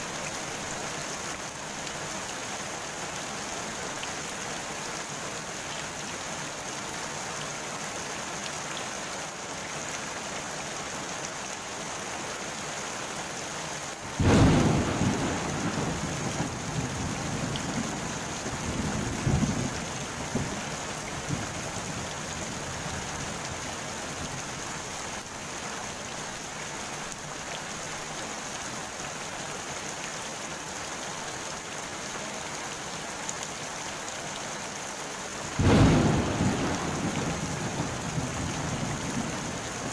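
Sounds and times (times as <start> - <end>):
rain falling on a pond: 0.0 - 39.9
thunder clap rumbling: 14.2 - 22.2, 35.6 - 39.9.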